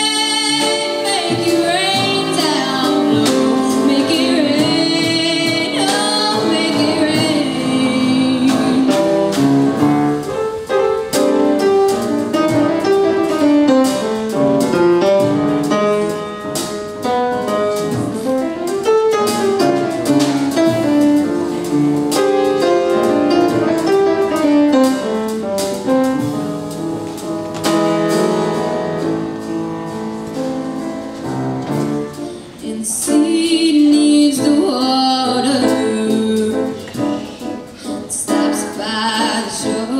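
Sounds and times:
young woman singing: 0.0 - 9.5, 32.6 - 39.9
instrumental accompaniment: 0.0 - 39.9.

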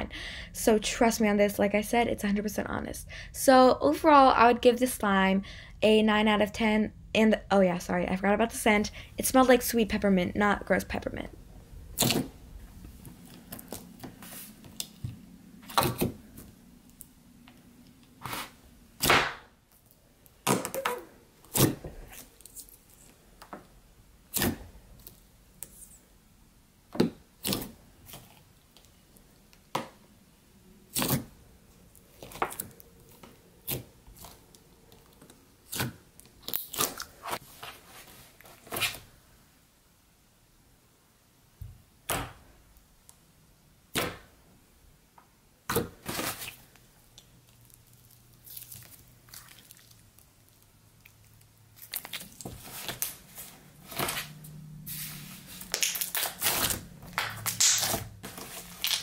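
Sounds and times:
slime popping and crackling: 46.2 - 53.2, 55.6 - 58.1, 58.8 - 59.0.

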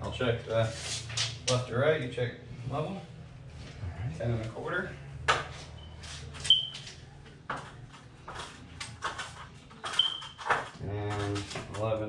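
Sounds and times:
knocks and scrapes on stepladder: 8.3 - 12.0.

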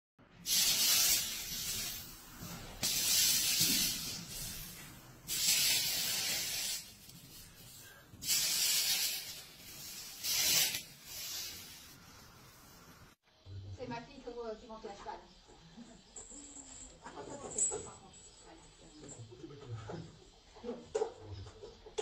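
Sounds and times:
molten solder sizzling: 0.4 - 13.2.

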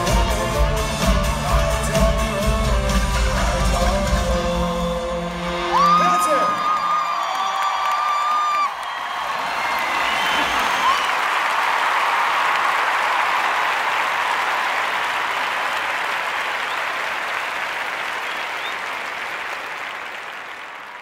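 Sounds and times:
crowd applauding: 5.7 - 21.0.

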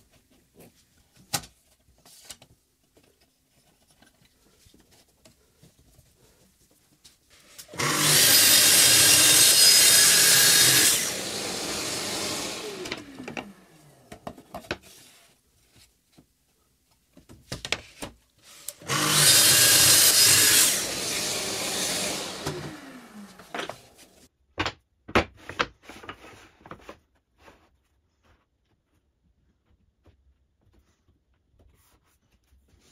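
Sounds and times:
tracksaw cutting wood: 7.6 - 14.0, 18.6 - 24.2
saw blade winding down whine: 7.7 - 13.6, 18.8 - 24.0.

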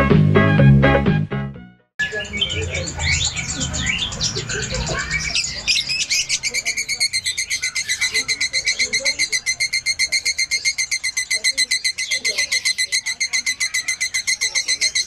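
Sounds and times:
lovebird chirping trill: 2.0 - 15.0.

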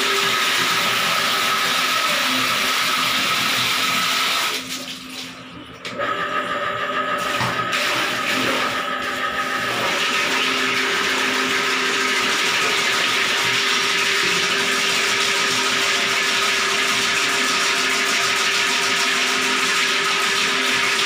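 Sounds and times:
drain-cleaning machine running: 0.0 - 21.0.

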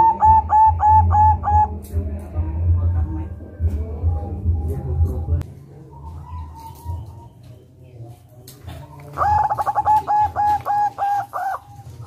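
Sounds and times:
dove cooing: 0.0 - 1.9, 8.6 - 12.0.

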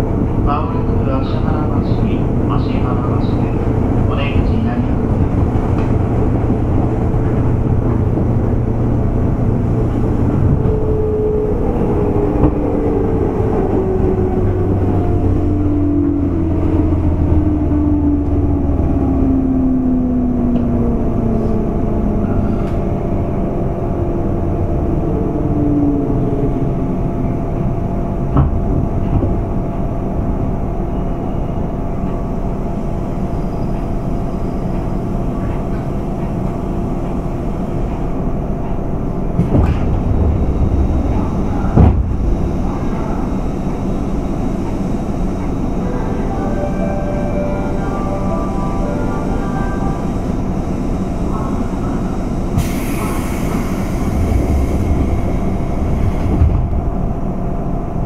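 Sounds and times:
electric train rumble: 0.0 - 58.0.

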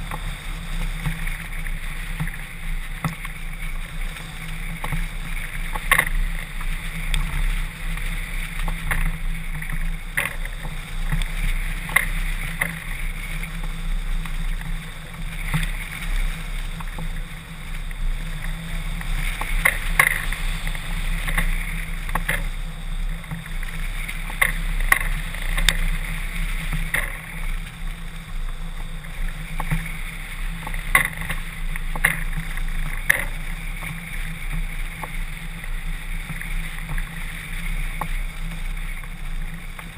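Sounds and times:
wind noise with deep rumble: 0.0 - 39.9.

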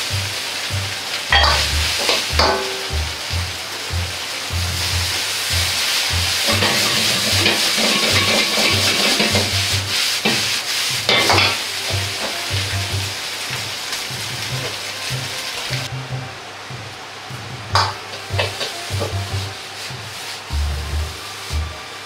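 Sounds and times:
ladle scraping wok: 0.0 - 15.9, 17.0 - 21.7
food sizzling in a wok: 0.0 - 22.0
ladle clanking against wok: 1.3 - 3.0, 6.4 - 12.5, 17.6 - 19.2.

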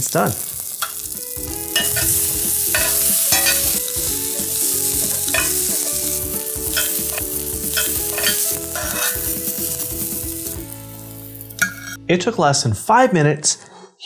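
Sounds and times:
vegetables sizzling in grill pan: 0.0 - 12.0
metal tongs clicking against pan: 0.8 - 1.1, 1.8 - 3.8, 5.2 - 5.8, 6.7 - 9.4, 11.6 - 12.0.

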